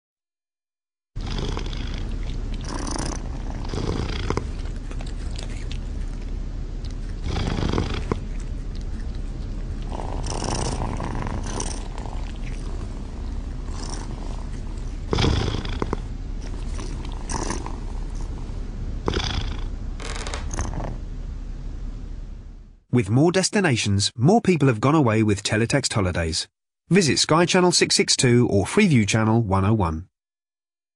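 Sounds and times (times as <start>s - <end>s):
cats vocalising: 1.2s - 18.3s
cat purring: 1.2s - 21.0s.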